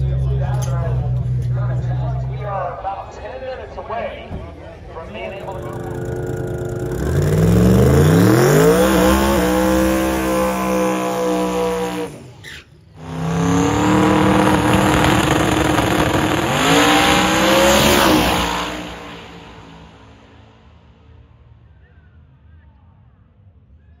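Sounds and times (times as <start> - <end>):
engine revving: 5.5 - 12.4, 13.0 - 20.3.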